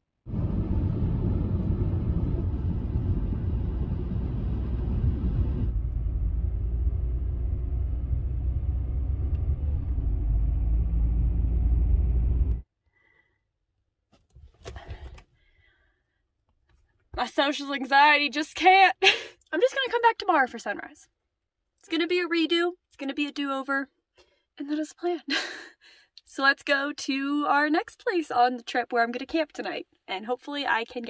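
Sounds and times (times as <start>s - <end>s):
car road and engine rumble: 0.3s - 12.6s.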